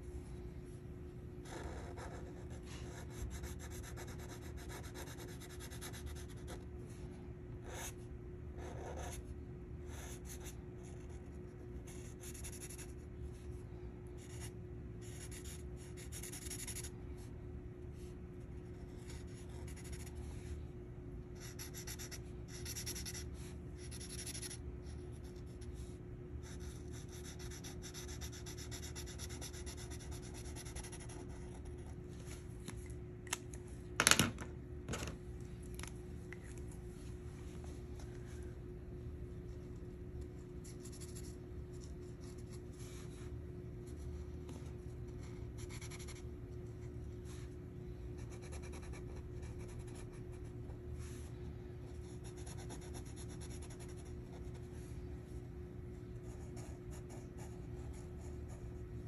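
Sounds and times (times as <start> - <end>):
felt-tip marker scratching paper: 14.2 - 16.9, 18.7 - 20.2, 21.4 - 24.6, 26.4 - 31.8.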